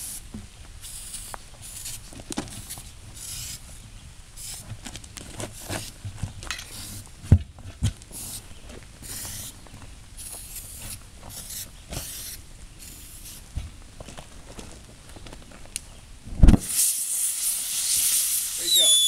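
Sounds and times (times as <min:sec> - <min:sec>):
aerosol can hissing: 0:00.8 - 0:02.0, 0:02.6 - 0:03.6, 0:09.1 - 0:09.5, 0:10.2 - 0:13.4, 0:16.6 - 0:19.0.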